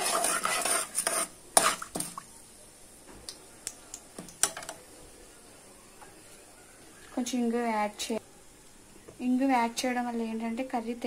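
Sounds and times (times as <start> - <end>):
spoon scraping a pan: 0.0 - 2.1
spices sizzling in oil: 0.0 - 3.0.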